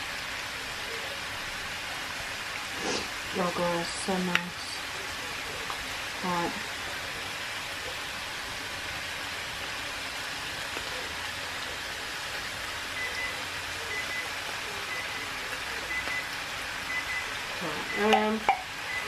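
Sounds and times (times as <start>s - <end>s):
food sizzling in frying pan: 0.0s - 19.0s.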